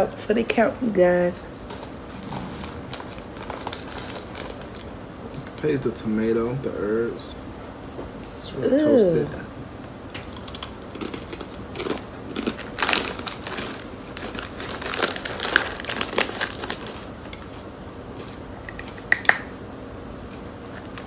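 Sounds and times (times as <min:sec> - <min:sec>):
crunching of dry rusks chewed: 0:02.2 - 0:05.6, 0:10.2 - 0:19.3
foil snack bag crinkling: 0:02.5 - 0:05.6, 0:10.4 - 0:17.5.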